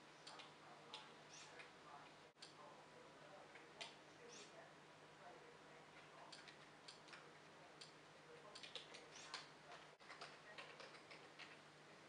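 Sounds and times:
faint clicks: 5.9s - 11.6s.

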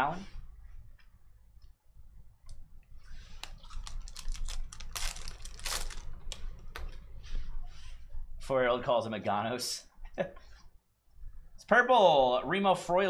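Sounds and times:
foil wrapper crinkling and tearing: 3.4s - 6.4s.

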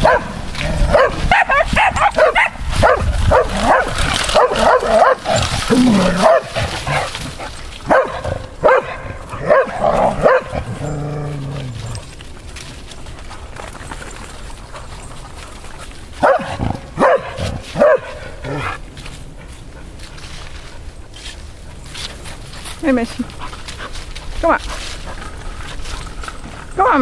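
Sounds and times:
dogs barking and yipping: 0.0s - 13.0s, 14.2s - 18.9s.

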